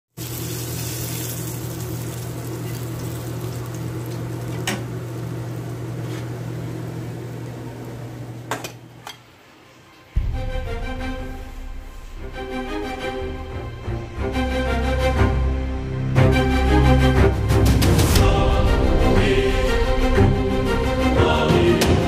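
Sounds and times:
low machine hum: 0.2s - 9.4s, 10.1s - 17.5s
background music: 9.3s - 22.0s.

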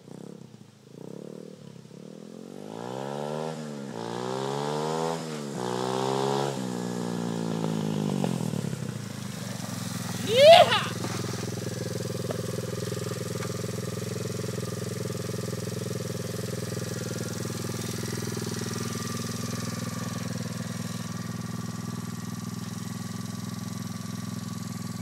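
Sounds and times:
motorbike engine idling: 6.6s - 25.0s.

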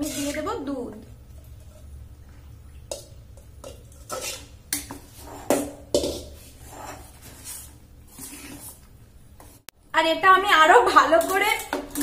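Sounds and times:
spoon clinking and scraping metal: 3.6s - 7.1s.

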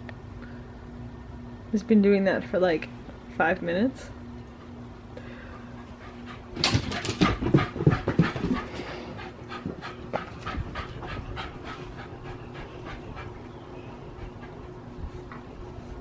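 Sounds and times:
small dog panting: 5.5s - 16.0s.

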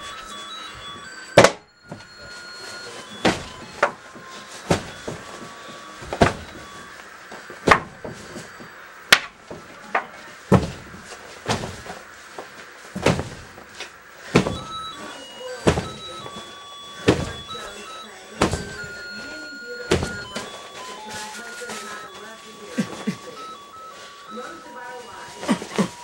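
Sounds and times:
stuffed animals thudding on bed: 0.8s - 6.9s, 7.6s - 9.7s, 10.5s - 12.0s, 12.9s - 19.2s, 19.8s - 20.9s.

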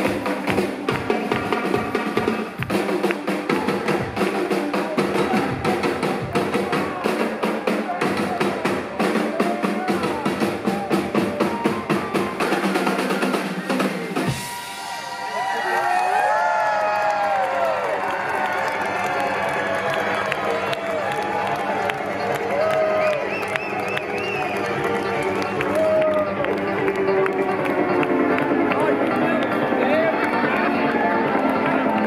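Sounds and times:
drum kit and percussion: 0.0s - 30.1s
sustained band chords: 19.8s - 32.0s.

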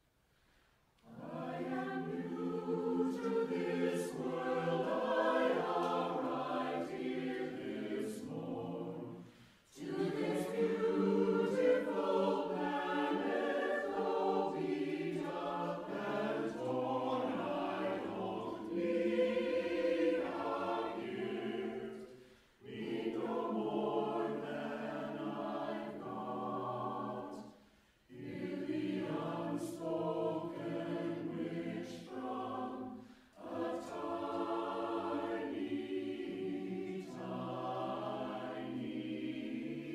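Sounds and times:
choir singing a cappella: 1.0s - 39.9s.

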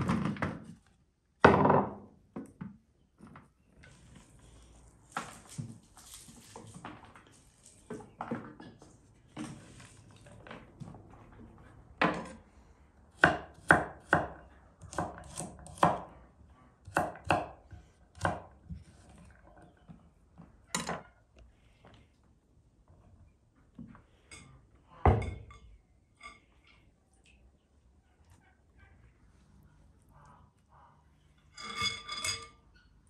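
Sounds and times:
knife chopping on wooden board: 13.2s - 16.0s.

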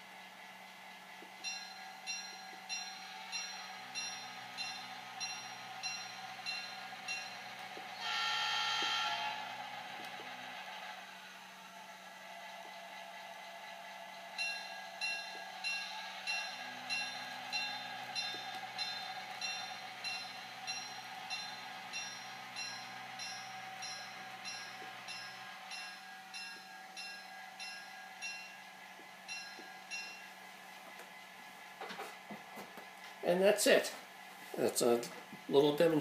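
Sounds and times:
diesel engine hum: 0.0s - 36.0s
locomotive bell ringing: 1.4s - 10.3s, 13.7s - 30.6s.

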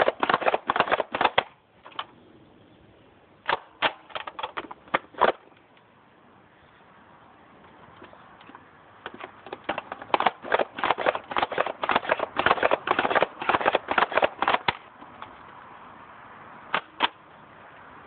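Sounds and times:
toy blaster pump clacks: 9.1s - 14.8s.

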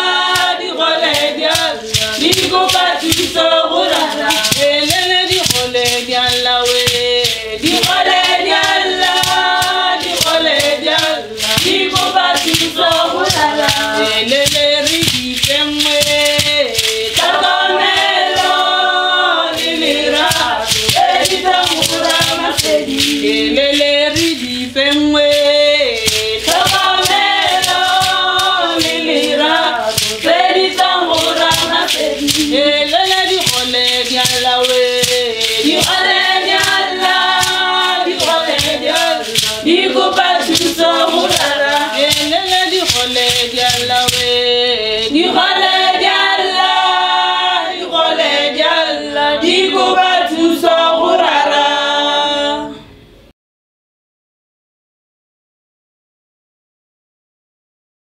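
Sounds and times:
leg rattles rattling: 0.0s - 44.9s
women singing together: 0.0s - 53.0s.

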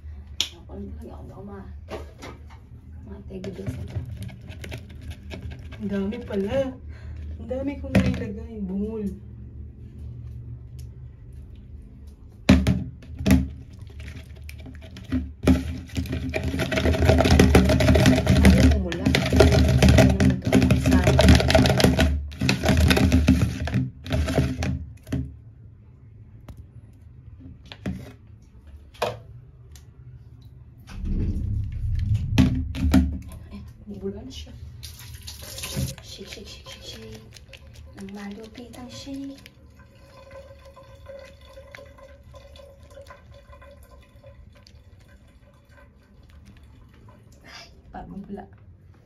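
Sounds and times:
water stirred in basin: 3.4s - 8.3s, 13.0s - 25.2s, 30.9s - 47.5s
water dripping: 29.7s - 48.3s.

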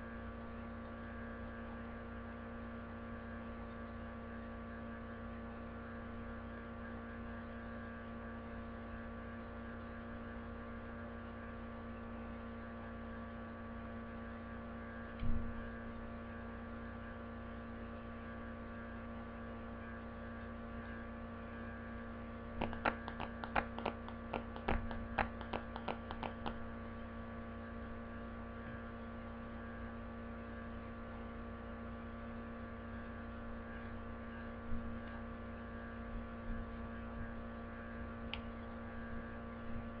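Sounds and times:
electrical mains hum: 0.0s - 40.0s
clicks and taps: 22.6s - 26.6s.

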